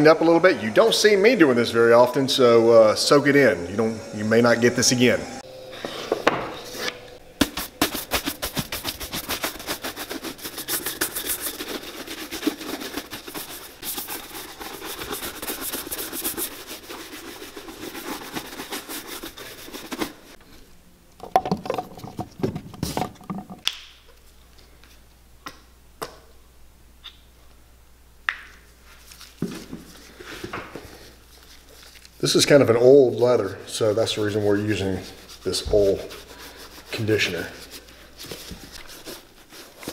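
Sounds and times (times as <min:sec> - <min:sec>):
shoe brush scrubbing leather boot: 0:07.4 - 0:20.4, 0:32.3 - 0:39.9
knocks and handling sounds: 0:21.2 - 0:26.3, 0:28.3 - 0:32.2.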